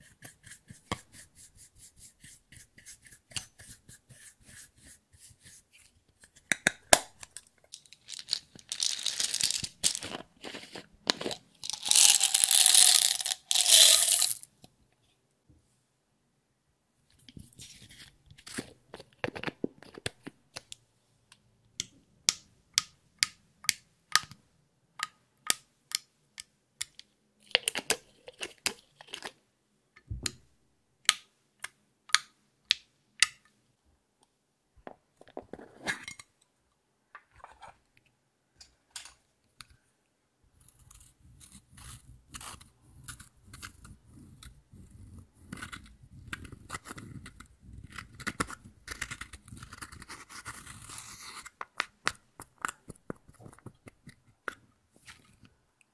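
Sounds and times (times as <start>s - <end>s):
tool scraping pressed powder: 40.6s - 51.6s.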